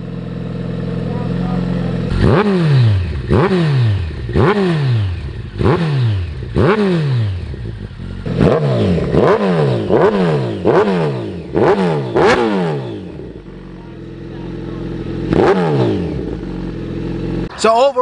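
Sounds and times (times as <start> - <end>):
motorcycle engine throttle blips: 0.0 - 17.7.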